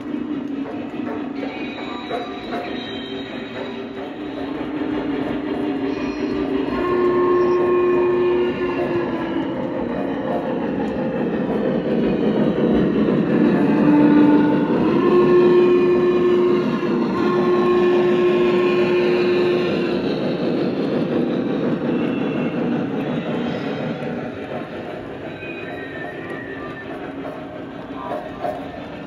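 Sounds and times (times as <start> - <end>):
model train running on track: 0.0 - 29.0
steam whistle blasts: 5.8 - 9.9, 13.5 - 20.1.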